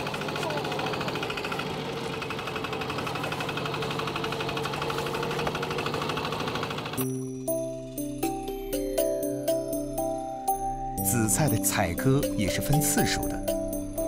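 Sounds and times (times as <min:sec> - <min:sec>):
boat engine knocking: 0:00.0 - 0:07.0.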